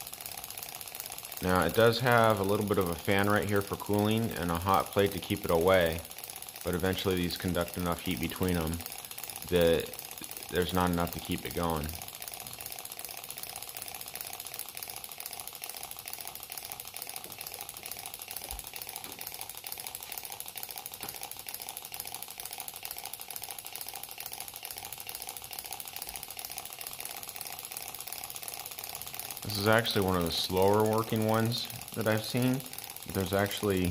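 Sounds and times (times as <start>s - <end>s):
stirling engine ticking clatter: 0.0s - 33.9s.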